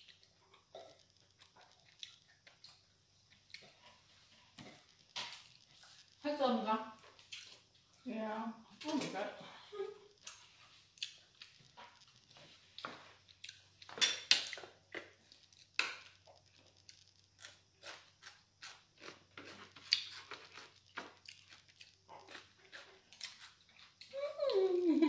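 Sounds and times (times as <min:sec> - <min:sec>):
utensils clinking against dishes: 0:13.9 - 0:14.5.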